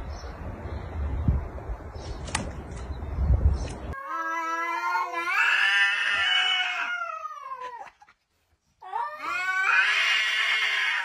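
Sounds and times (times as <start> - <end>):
cat yowling: 4.0 - 7.9, 8.8 - 11.0.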